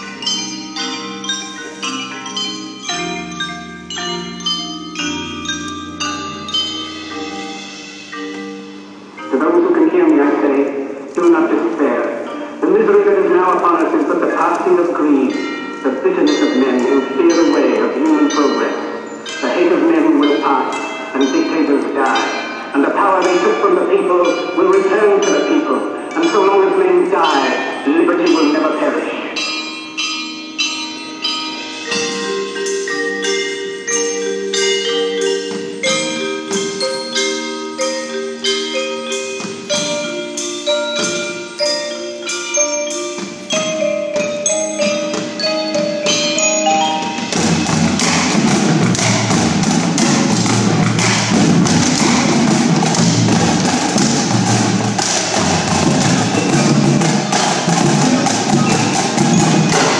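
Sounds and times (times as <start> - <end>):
marimbas and chimes melody: 0.0 - 59.9
drumline with bass drums: 43.0 - 59.9.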